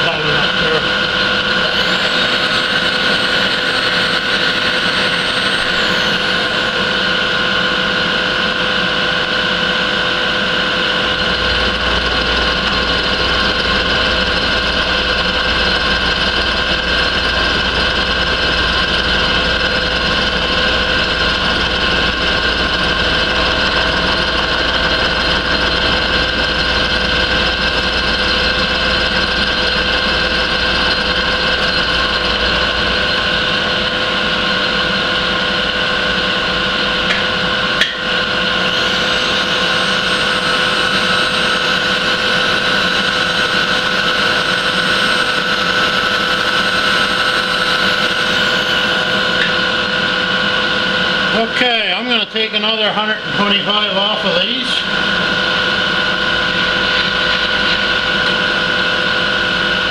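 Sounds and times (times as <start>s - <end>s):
milling machine cutting metal: 0.0s - 59.9s
deep low hum: 10.9s - 34.2s.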